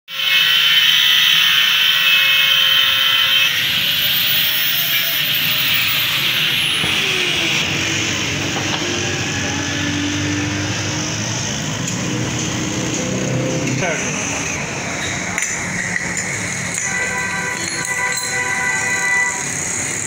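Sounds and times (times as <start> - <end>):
angle grinder grinding steel: 0.1 - 20.0
grinder whine spinning down: 0.2 - 14.7.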